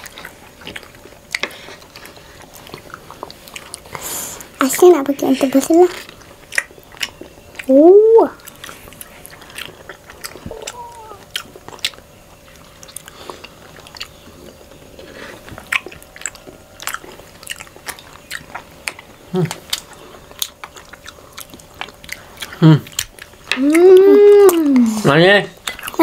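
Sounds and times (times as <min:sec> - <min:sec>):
wet chewing mouth sounds: 0:00.0 - 0:26.0.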